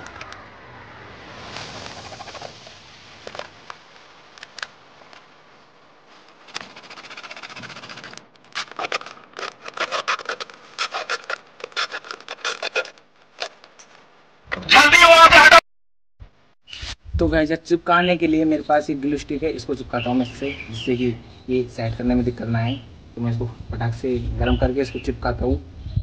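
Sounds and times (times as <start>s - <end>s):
plastic bottle scraping and crackling: 6.4s - 14.0s
blade sawing plastic: 6.5s - 13.6s.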